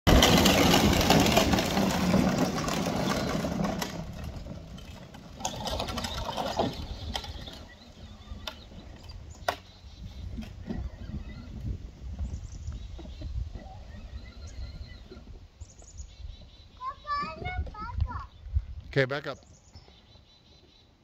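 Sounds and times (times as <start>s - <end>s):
toy truck motors whirring: 0.1s - 15.4s.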